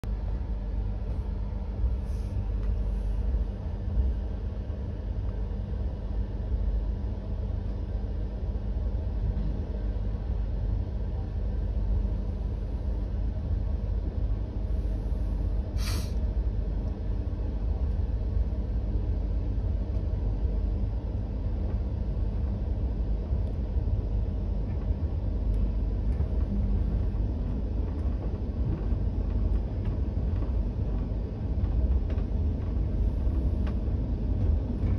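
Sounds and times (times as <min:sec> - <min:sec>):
train wheels rumbling on track: 0:00.0 - 0:34.9
sharp hiss: 0:15.8 - 0:16.2.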